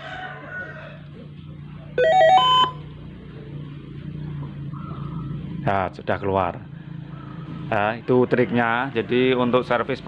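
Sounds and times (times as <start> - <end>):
television power-on melody: 2.0 - 2.9.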